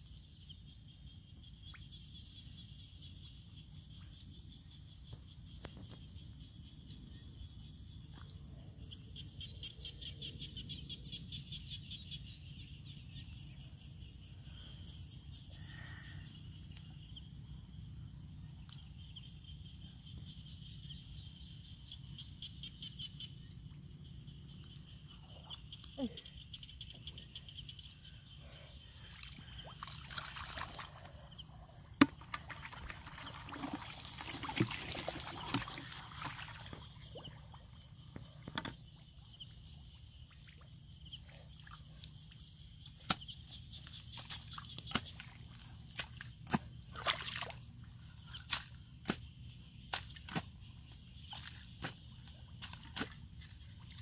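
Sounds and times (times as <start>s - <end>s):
hands splashing in mud: 44.1s - 47.6s.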